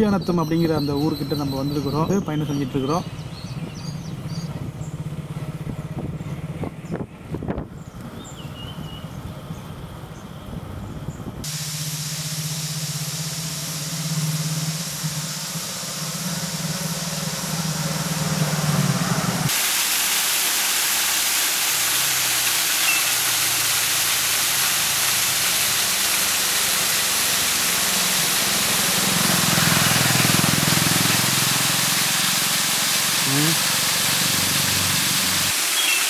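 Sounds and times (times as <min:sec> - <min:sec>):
motorcycle engine running: 0:03.1 - 0:08.0, 0:11.5 - 0:19.5, 0:26.1 - 0:35.5
waterfall splashing on rock: 0:19.5 - 0:36.0.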